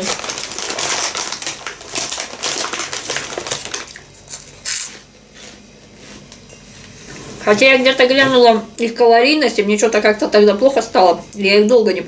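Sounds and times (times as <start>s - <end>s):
plastic snack bag crinkling: 0.0s - 5.0s.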